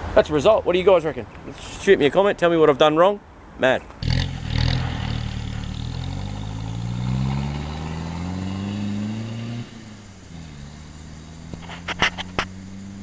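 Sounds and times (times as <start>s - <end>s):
diesel engine accelerating: 4.0s - 13.0s.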